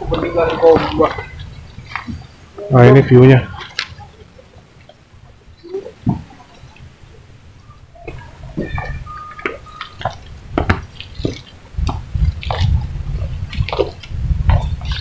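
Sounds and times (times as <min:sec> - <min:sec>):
footsteps on dirt trail: 0:08.1 - 0:15.0
low rumble on microphone: 0:10.2 - 0:15.0.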